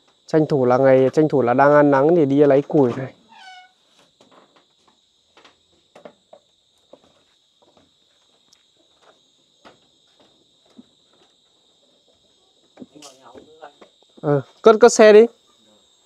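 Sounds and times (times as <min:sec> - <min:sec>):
high insect drone: 0:00.0 - 0:16.0
faint footsteps on wooden planks: 0:03.8 - 0:14.2.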